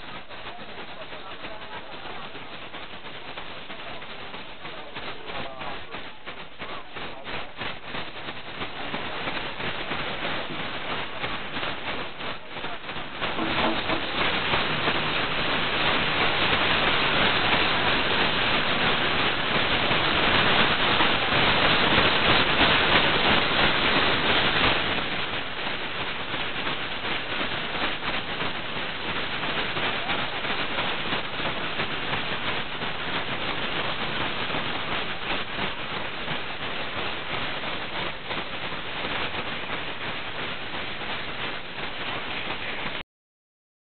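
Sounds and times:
voices: 0.0 - 7.7, 11.9 - 15.2.

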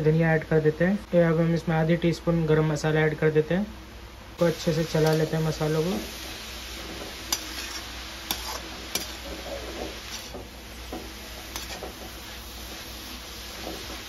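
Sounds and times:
food sizzling: 4.4 - 14.0
spatula scraping a metal pan: 6.8 - 10.5, 11.4 - 12.8.

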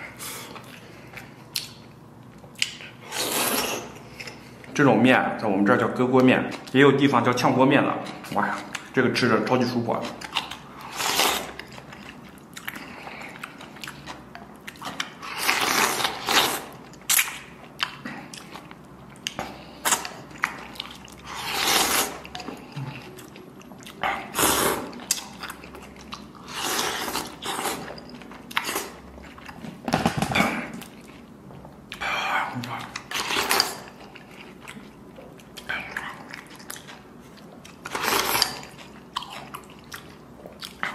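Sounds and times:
slurping noodles: 3.1 - 4.0, 24.3 - 24.9
chewing: 10.0 - 29.8, 30.4 - 40.9.

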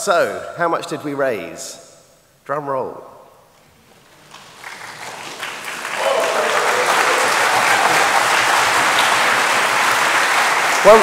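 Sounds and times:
audience applause: 4.1 - 11.0.

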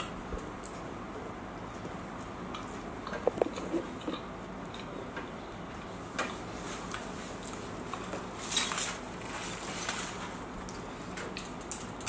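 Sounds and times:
eating clicks and crackles: 0.4 - 8.2, 10.6 - 12.0.

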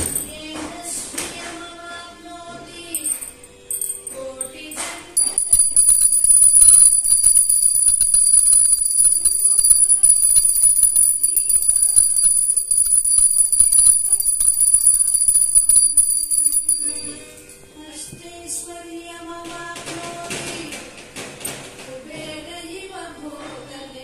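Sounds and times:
hand bell ringing rapidly: 5.2 - 17.2.

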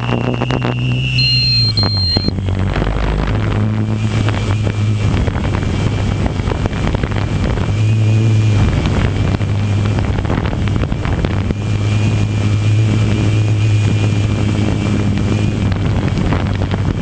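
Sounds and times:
wind buffeting microphone: 0.0 - 1.0, 1.6 - 17.0
drone motors humming and whining: 0.0 - 16.9.

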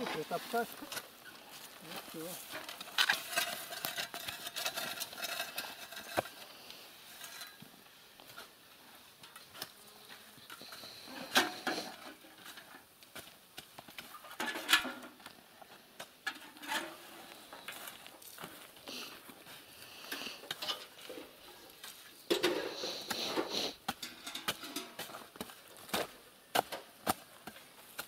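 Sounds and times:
shovel scraping soil and gravel: 0.0 - 7.7, 10.5 - 15.1, 16.2 - 28.0.

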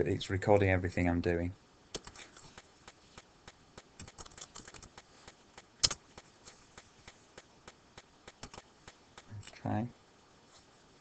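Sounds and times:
laptop keys clicking: 1.9 - 9.3.

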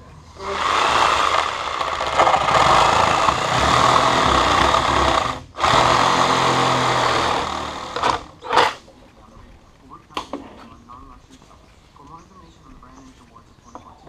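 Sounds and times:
reciprocating saw cutting metal: 0.4 - 8.8.

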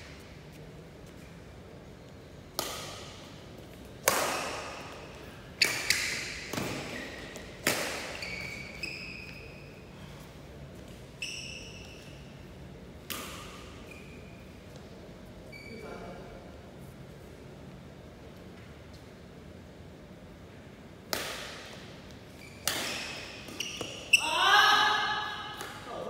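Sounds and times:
rackets hitting shuttlecock: 2.5 - 8.7, 13.0 - 13.8, 21.0 - 24.2
shoes squeaking on court floor: 4.4 - 9.9, 10.7 - 12.4, 13.3 - 14.8, 15.4 - 16.0, 22.1 - 24.3.

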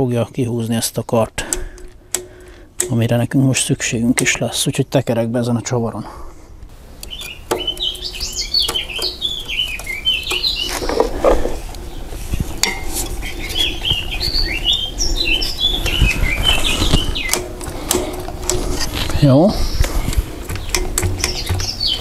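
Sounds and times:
songbird singing: 0.0 - 22.0.

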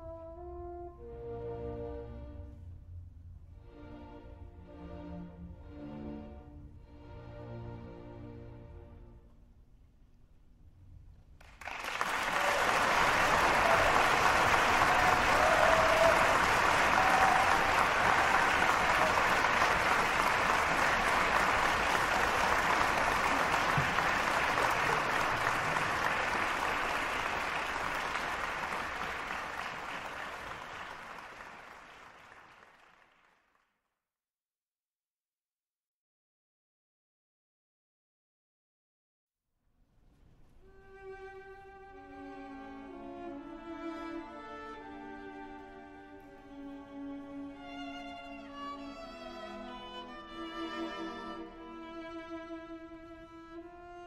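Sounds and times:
applause: 11.4 - 33.9.

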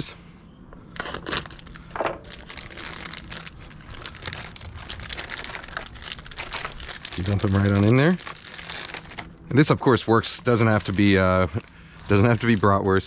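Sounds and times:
plastic crinkling and crackling: 0.9 - 13.0
knife slitting plastic package: 1.0 - 9.3.

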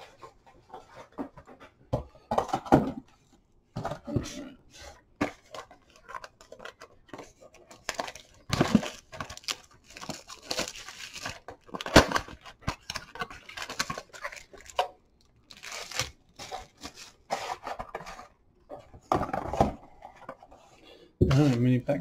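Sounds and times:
foil wrappers crinkling and tearing: 5.6 - 17.8.

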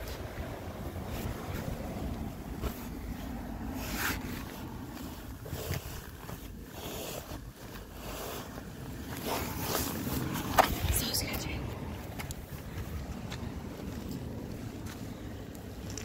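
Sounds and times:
steady low rumble: 0.0 - 16.0
wind buffeting microphone: 0.0 - 16.0
handling scrapes: 1.0 - 11.3.

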